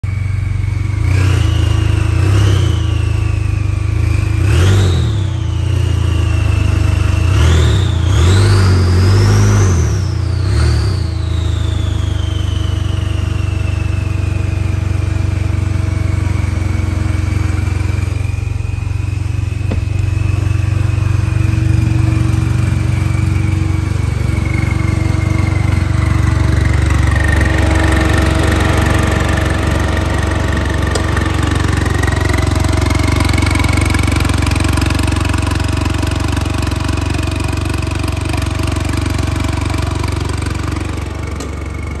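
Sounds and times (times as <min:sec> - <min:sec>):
deep engine drone: 0:00.0 - 0:42.0
high turbo whistle: 0:10.0 - 0:14.6, 0:18.4 - 0:36.6.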